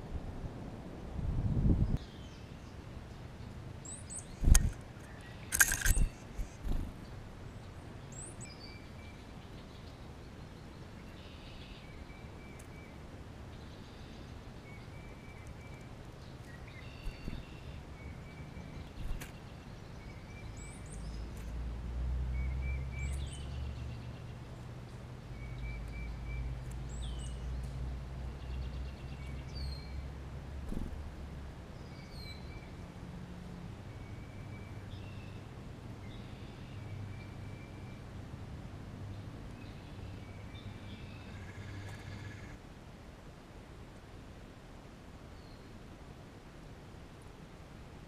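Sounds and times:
songbirds whistling and chirping: 0:08.1 - 0:10.0, 0:13.6 - 0:21.3, 0:25.3 - 0:27.4, 0:31.8 - 0:32.8.

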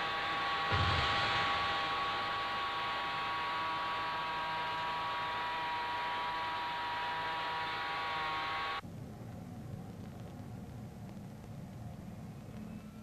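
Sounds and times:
jet engine rushing with high whine: 0:00.0 - 0:08.8.

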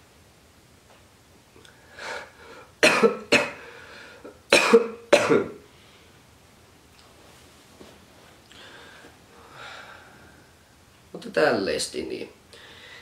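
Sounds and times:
man coughing: 0:02.8 - 0:03.6, 0:04.5 - 0:05.6
soft breath: 0:03.6 - 0:04.3, 0:08.5 - 0:10.8, 0:12.5 - 0:13.0.

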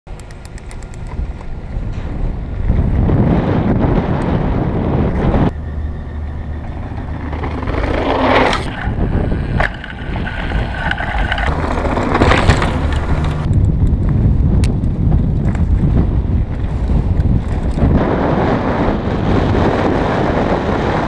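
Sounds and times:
wind buffeting microphone: 0:00.6 - 0:21.0
tyres crunching on gravel: 0:06.5 - 0:13.5
bike knocking on rocks: 0:06.6 - 0:13.5.

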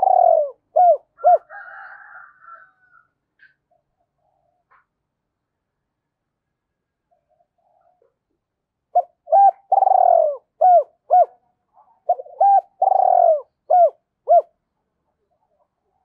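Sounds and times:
dove cooing: 0:00.0 - 0:02.8, 0:08.9 - 0:14.6.

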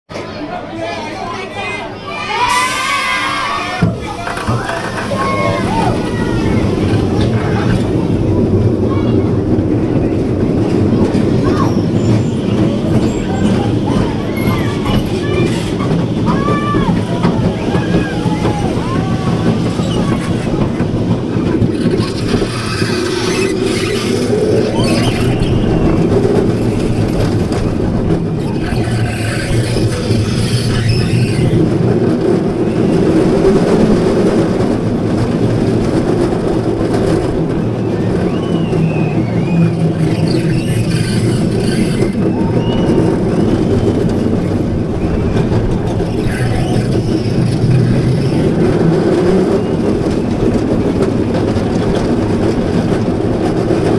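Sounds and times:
roller coaster wheels rumbling: 0:00.1 - 0:53.9
high wheel squeals: 0:28.4 - 0:31.6, 0:38.2 - 0:44.0.

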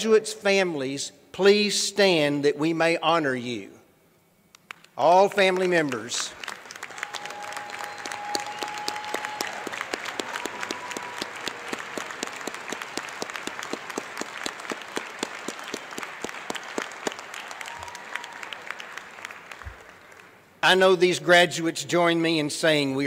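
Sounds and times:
close hand claps: 0:04.5 - 0:20.4
audience applauding: 0:04.7 - 0:20.5.

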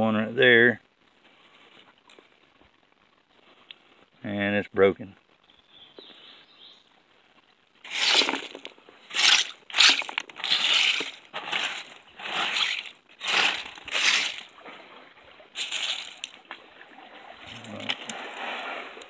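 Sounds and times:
gravel rattling on wet sifter: 0:07.8 - 0:14.8, 0:15.6 - 0:16.4, 0:17.4 - 0:19.0.

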